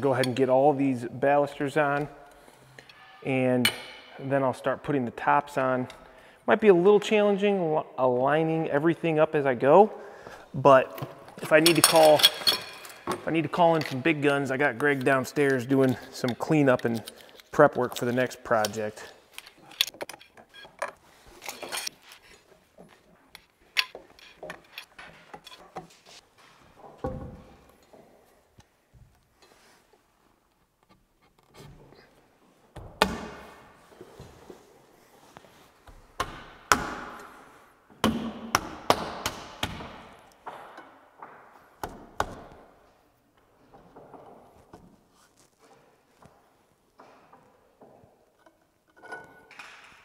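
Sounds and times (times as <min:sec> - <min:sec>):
metal balusters clinking and knocking: 0:11.4 - 0:14.1, 0:23.4 - 0:26.0.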